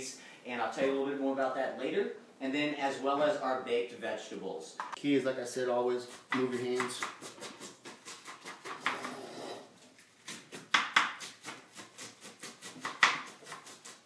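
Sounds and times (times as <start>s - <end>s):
knife slicing cabbage on board: 6.1s - 9.3s, 10.2s - 14.0s.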